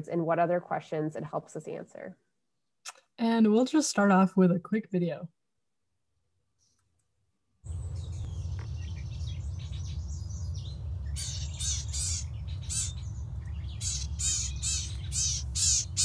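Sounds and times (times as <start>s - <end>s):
low rumble: 7.7s - 16.0s
bird scolding chatter: 11.1s - 16.0s.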